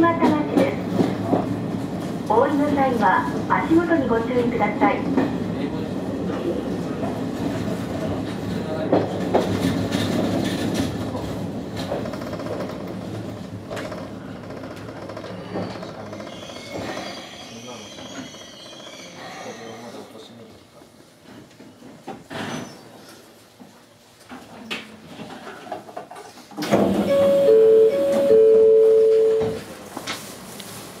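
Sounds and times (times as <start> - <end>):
train rumble: 0.0 - 16.3, 26.6 - 31.0
train wheels clacking over rail joints: 8.2 - 11.1
electric train braking: 26.7 - 29.6.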